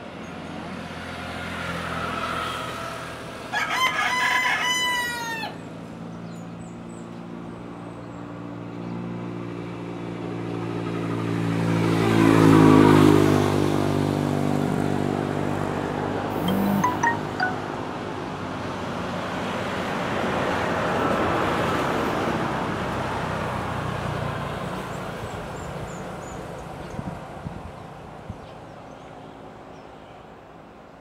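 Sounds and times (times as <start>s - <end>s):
rooster crowing: 3.5s - 5.6s.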